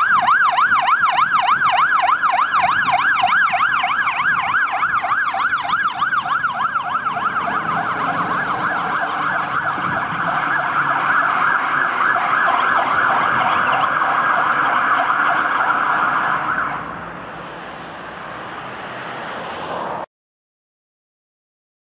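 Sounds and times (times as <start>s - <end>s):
electronic siren yelping: 0.0s - 17.0s
engine and road noise: 0.0s - 20.1s.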